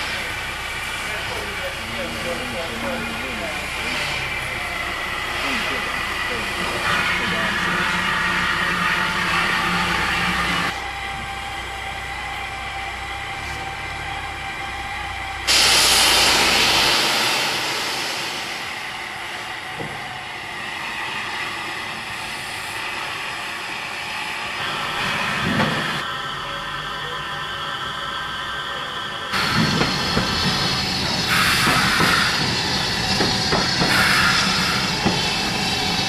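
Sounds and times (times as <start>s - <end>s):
steam locomotive hiss: 0.0s - 10.8s, 15.3s - 36.0s
steam venting burst: 15.5s - 19.1s, 29.4s - 36.0s.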